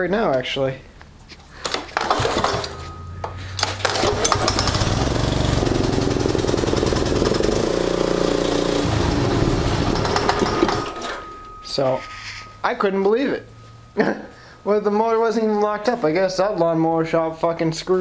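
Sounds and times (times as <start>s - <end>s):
mower engine pull-started: 1.6s - 11.3s
mower engine running: 2.0s - 11.2s.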